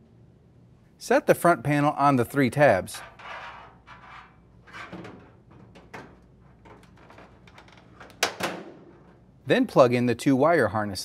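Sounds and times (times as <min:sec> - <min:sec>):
sheet metal scraping and rattling: 0:02.9 - 0:09.3.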